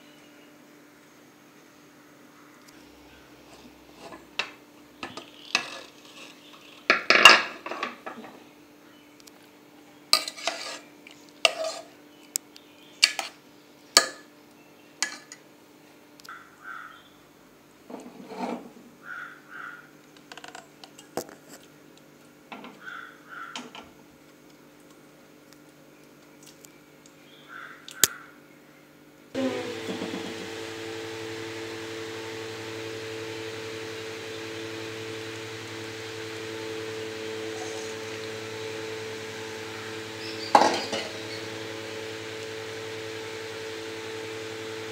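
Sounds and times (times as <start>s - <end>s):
steel spoon scraping a metal pot: 5.5s - 6.8s, 10.2s - 11.9s.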